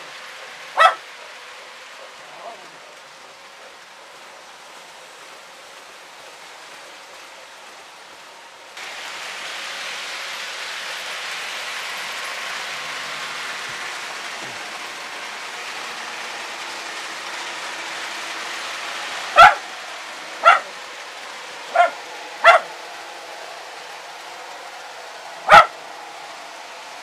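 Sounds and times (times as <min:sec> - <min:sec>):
model trains running: 0:00.0 - 0:27.0
dog barking: 0:00.8 - 0:01.0, 0:19.4 - 0:19.6, 0:20.4 - 0:20.7, 0:21.7 - 0:22.7, 0:25.5 - 0:25.8.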